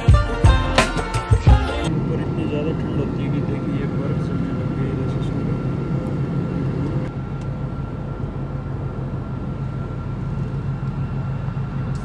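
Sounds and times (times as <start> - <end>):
airliner cabin drone: 1.8 - 12.0
faint steady whine: 1.9 - 12.0.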